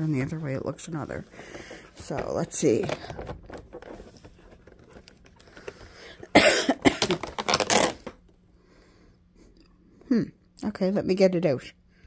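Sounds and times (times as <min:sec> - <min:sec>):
cardboard handling: 0:00.0 - 0:06.2, 0:07.0 - 0:08.3
woman coughing: 0:06.3 - 0:07.3.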